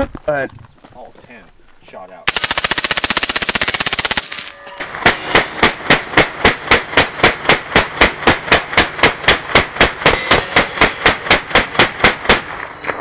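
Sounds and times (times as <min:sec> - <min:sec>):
rifle burst: 0:02.3 - 0:12.7
slowed-down gunshots: 0:02.3 - 0:13.0.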